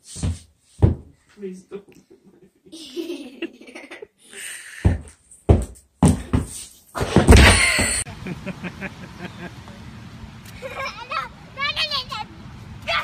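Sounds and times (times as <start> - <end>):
skates thumping on wooden floor: 0.2 - 1.2, 4.9 - 8.0
laughter: 2.3 - 4.2, 7.5 - 9.5, 10.6 - 11.0.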